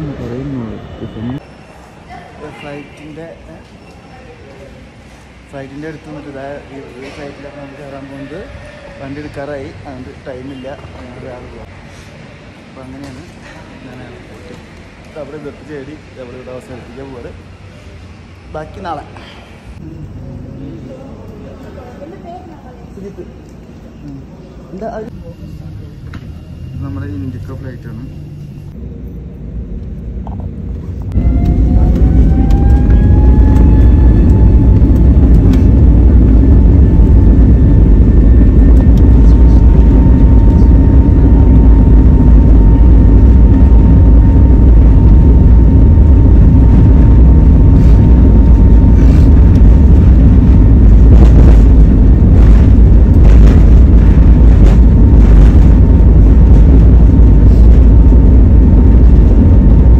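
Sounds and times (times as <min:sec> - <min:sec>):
jet engines rumbling and whining: 0:25.0 - 0:59.9.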